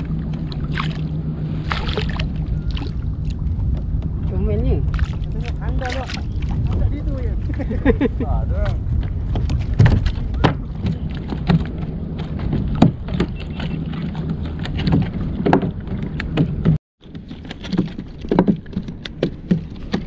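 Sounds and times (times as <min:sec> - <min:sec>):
water slapping against kayak hull: 0:00.0 - 0:20.0
wind rumble on microphone: 0:00.0 - 0:20.0.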